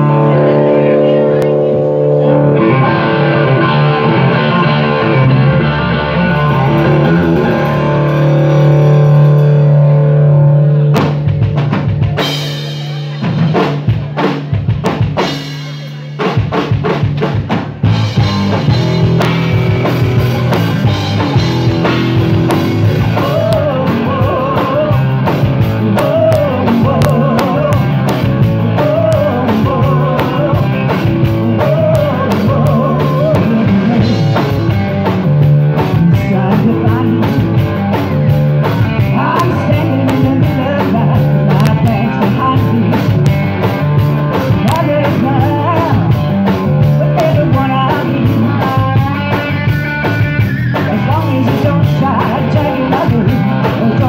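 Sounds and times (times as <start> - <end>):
guitar and bass chords: 0.0 - 54.0
rock band playing: 0.0 - 54.0
drum hits and fills: 2.7 - 10.2, 10.8 - 54.0
woman singing: 23.1 - 25.2, 25.9 - 28.0, 28.7 - 34.2, 35.9 - 37.5, 39.0 - 43.2, 44.6 - 49.6, 50.9 - 54.0.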